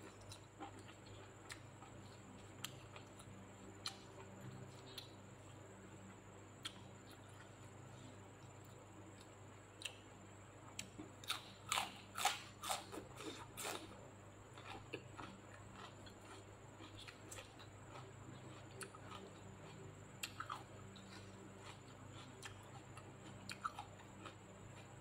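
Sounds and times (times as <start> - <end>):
soft chewing: 0.0 - 25.0
crunching bites: 10.8 - 14.0.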